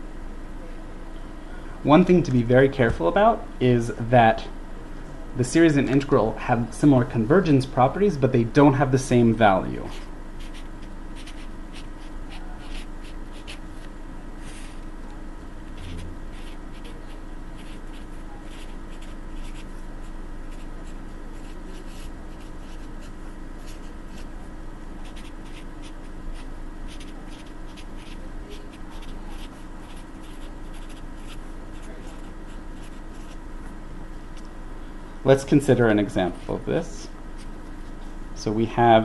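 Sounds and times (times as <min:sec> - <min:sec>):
steady low hum: 0:00.0 - 0:39.0
marker writing on paper: 0:09.9 - 0:13.6, 0:15.7 - 0:17.0, 0:17.6 - 0:19.7, 0:20.5 - 0:23.0, 0:25.0 - 0:28.2, 0:28.9 - 0:33.4.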